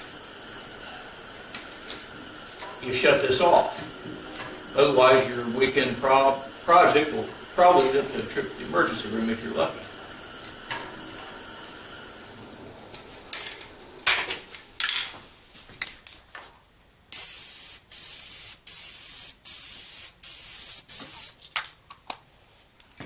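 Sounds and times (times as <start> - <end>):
aerosol spray can hissing: 17.1 - 21.4.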